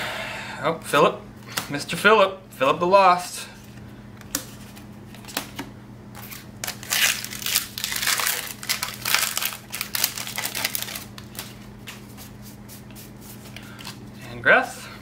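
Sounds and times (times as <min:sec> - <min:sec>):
foil wrapper crinkling and tearing: 0:06.2 - 0:12.0.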